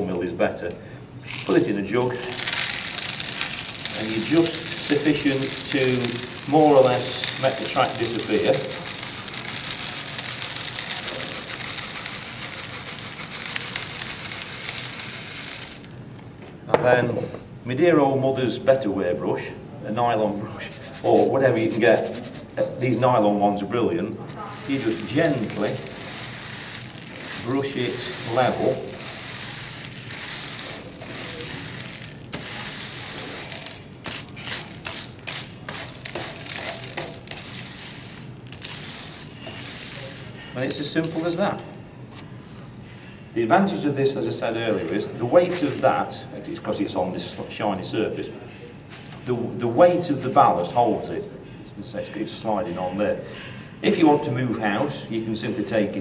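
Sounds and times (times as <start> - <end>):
grit pouring onto track: 1.2 - 15.9, 24.4 - 41.8
stones scraping and rattling: 1.2 - 16.0, 24.3 - 41.8, 45.4 - 46.1.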